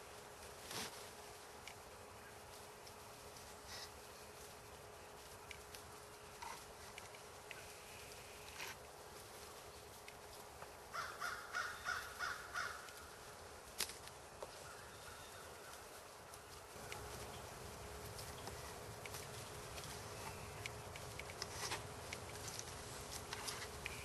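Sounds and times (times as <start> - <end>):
crow cawing: 10.9 - 13.0.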